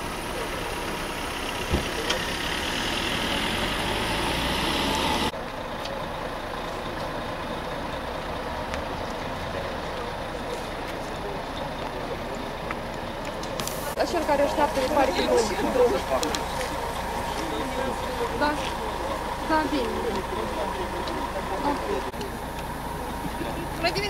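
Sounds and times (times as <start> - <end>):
bus diesel engine idling: 0.0 - 24.0
vehicle engine noise: 0.0 - 24.0.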